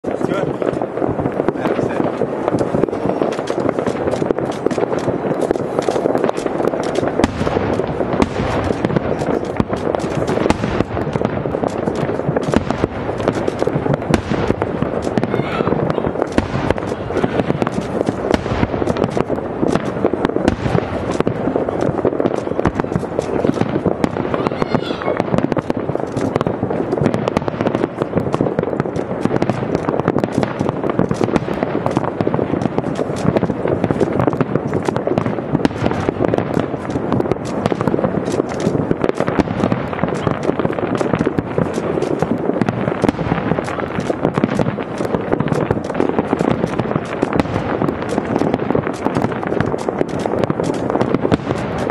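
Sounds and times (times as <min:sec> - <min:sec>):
fireworks shell bursts: 0:00.0 - 0:51.9.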